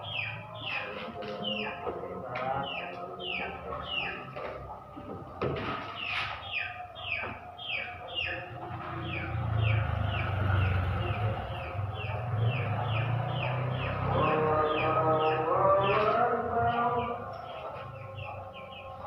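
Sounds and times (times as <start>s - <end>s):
songbird chirping: 0.0s - 19.0s
knocks: 4.4s - 6.2s.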